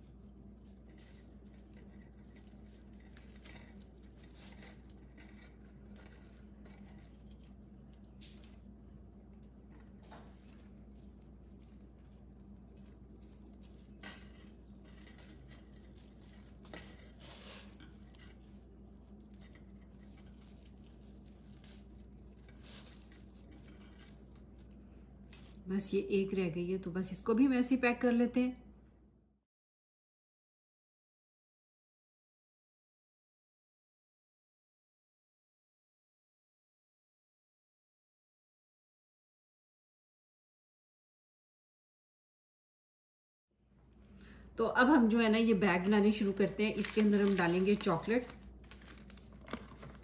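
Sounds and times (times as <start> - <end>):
metal bangles clinking: 0.0 - 8.7, 9.7 - 25.7, 46.8 - 49.2.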